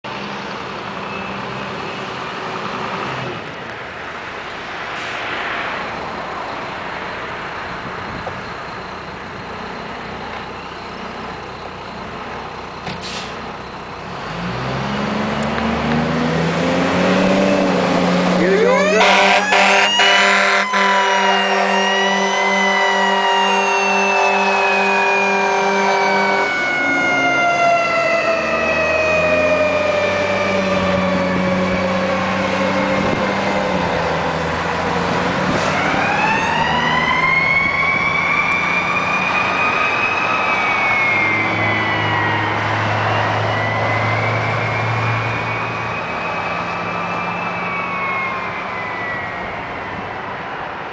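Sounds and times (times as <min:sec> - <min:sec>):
truck engine running: 0:06.3 - 0:16.2
fire engine siren wailing: 0:14.6 - 0:50.9
steady horn blast: 0:18.4 - 0:27.2.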